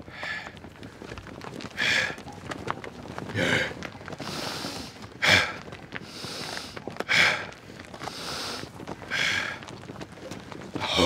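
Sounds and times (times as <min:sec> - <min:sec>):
man rasping breaths: 0:01.8 - 0:02.2, 0:03.3 - 0:09.6
man gasping: 0:03.3 - 0:07.5, 0:10.8 - 0:11.0.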